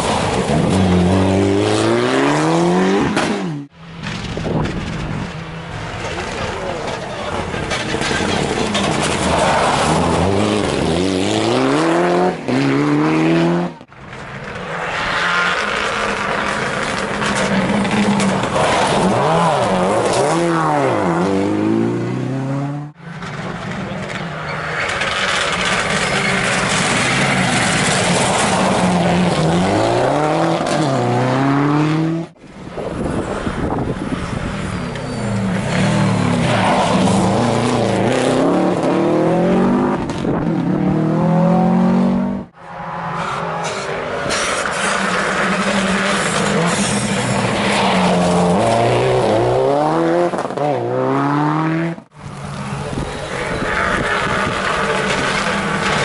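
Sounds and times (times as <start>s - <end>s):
rally car engines revving past: 0.0s - 4.7s, 5.6s - 56.0s.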